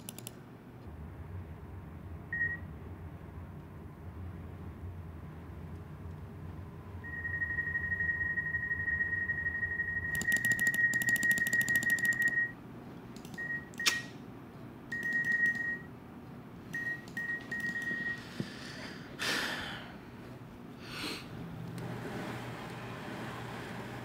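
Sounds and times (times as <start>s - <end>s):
short beeps: 7.0s - 12.6s
sharp click: 13.2s - 14.2s.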